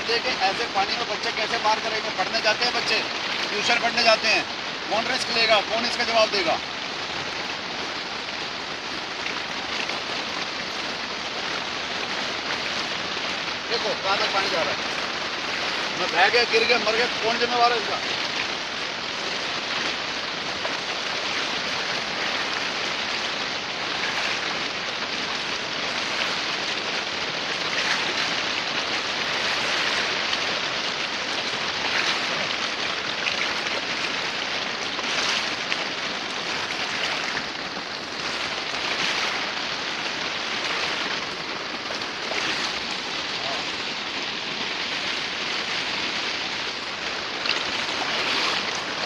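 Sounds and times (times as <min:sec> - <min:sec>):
river rushing over stones: 0:00.0 - 0:49.0
splashing of person wading: 0:18.0 - 0:49.0.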